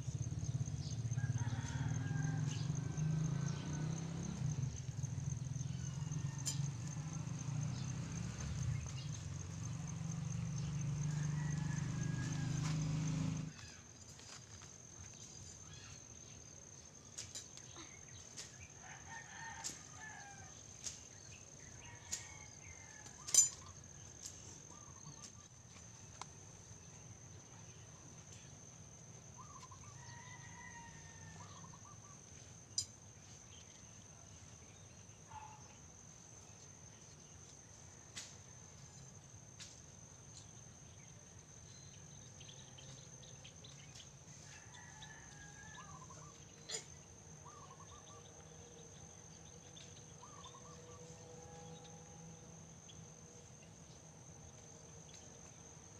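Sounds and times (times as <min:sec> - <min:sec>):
rooster crowing: 0:00.8 - 0:04.8, 0:05.6 - 0:07.9, 0:10.7 - 0:13.5, 0:18.8 - 0:20.6, 0:29.7 - 0:32.0, 0:44.4 - 0:46.4.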